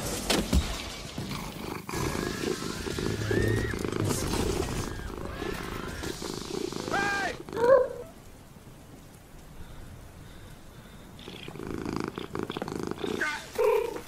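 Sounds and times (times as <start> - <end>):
rain hissing: 0.0 - 14.0
cat purring: 1.2 - 8.1, 11.2 - 14.0.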